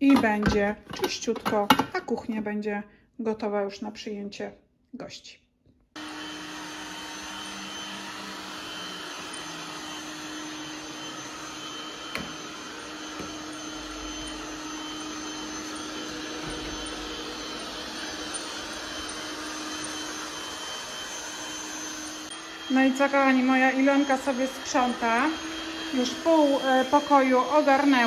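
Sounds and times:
robot vacuum cleaner humming: 6.0 - 28.0.

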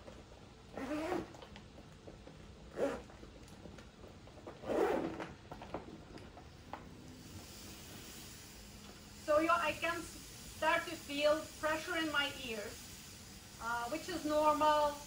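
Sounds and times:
zipper being pulled closed: 0.7 - 1.4, 2.7 - 3.1, 4.5 - 5.3.

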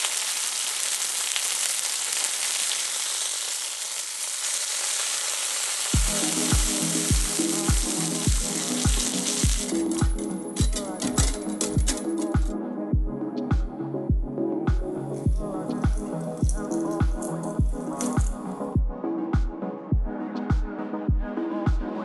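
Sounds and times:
food sizzling in a frying pan: 0.0 - 12.3
music with steady beat: 6.0 - 22.0.

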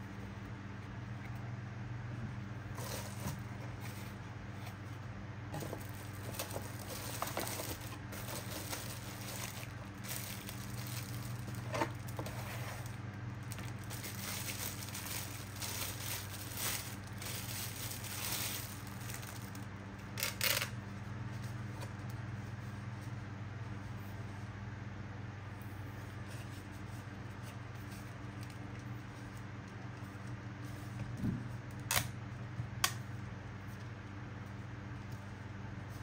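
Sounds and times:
plastic bag crinkling: 5.6 - 20.7.

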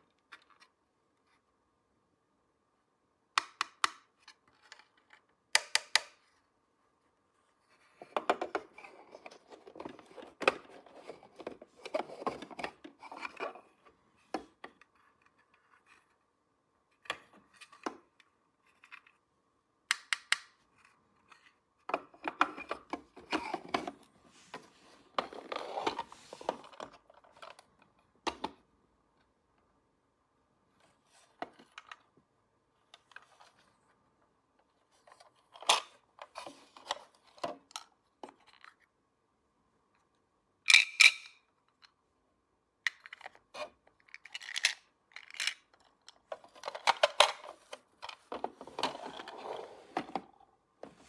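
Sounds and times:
toy pieces rubbing and clattering: 44.1 - 45.6.

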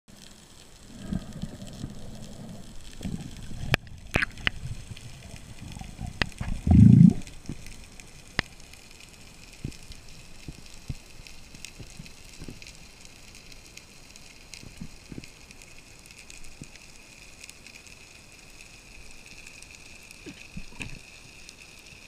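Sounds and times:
muffled underwater water rumble: 0.2 - 13.2
low whoosh: 6.5 - 7.3.

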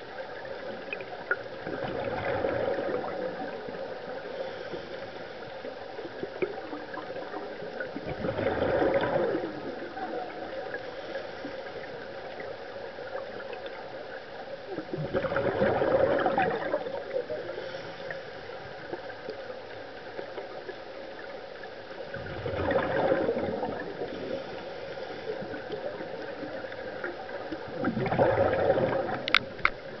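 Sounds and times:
underwater hiss: 2.0 - 7.8, 8.4 - 13.6, 15.3 - 20.4, 22.0 - 29.3
regulator bubbling exhalations: 15.0 - 16.9, 22.2 - 24.4, 27.8 - 29.4.

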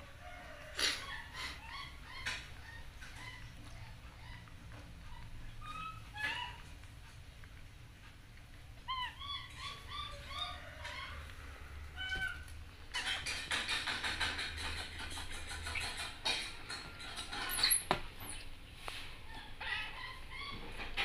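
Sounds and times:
high chirping animal calls: 8.8 - 13.8.

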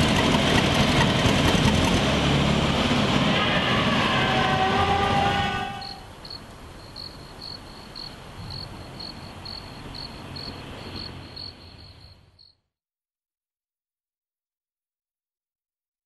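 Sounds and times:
crickets chirping: 5.8 - 12.6.

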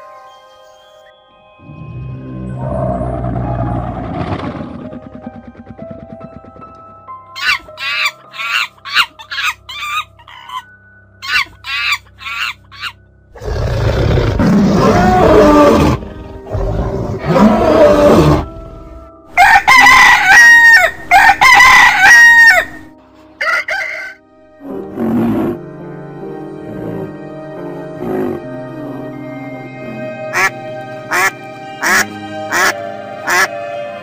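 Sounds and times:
background music: 0.0 - 34.0.

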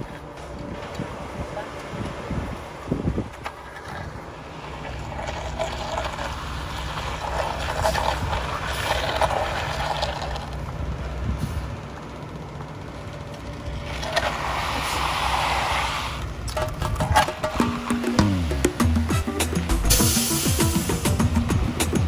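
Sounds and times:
diesel engine running: 0.0 - 22.0
float scraping wet concrete: 3.2 - 10.8, 13.8 - 18.8.

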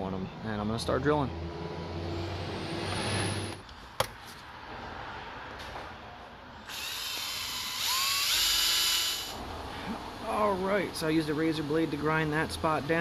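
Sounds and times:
electric drill whining: 6.7 - 9.4.

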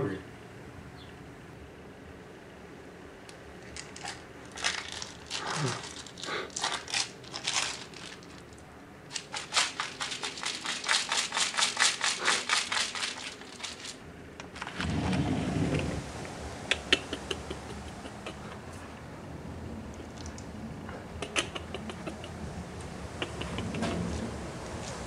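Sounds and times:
crinkling and crackling: 3.6 - 16.0
low rumbling rustle: 13.1 - 16.6, 23.7 - 25.0.

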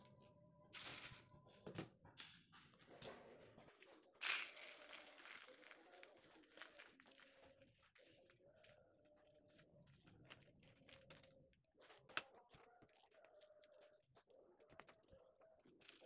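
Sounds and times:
seeds pouring into plastic tub: 0.8 - 1.2, 4.2 - 9.7
seeds stirred by hand: 4.2 - 11.0.

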